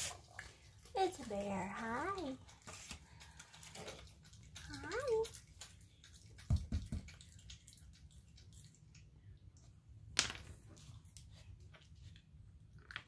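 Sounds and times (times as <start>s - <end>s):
low steady hum: 0.0s - 13.0s
raccoon clicking on tile floor: 12.8s - 13.0s.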